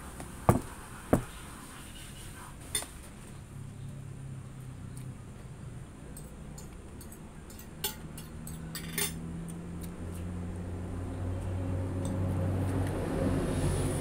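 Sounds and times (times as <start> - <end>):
tableware clinking on a plate: 6.2 - 9.2.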